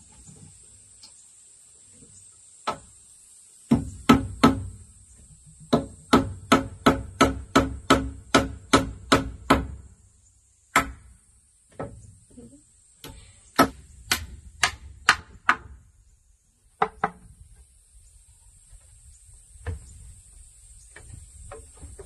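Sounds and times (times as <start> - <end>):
hammer driving nail into wood: 5.7 - 9.8.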